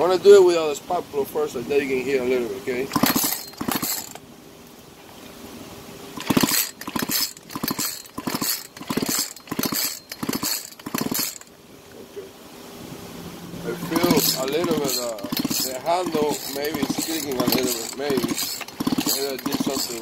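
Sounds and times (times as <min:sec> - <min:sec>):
chainsaw recoil starter pulls: 0:02.9 - 0:04.2, 0:06.2 - 0:11.5, 0:13.8 - 0:20.0.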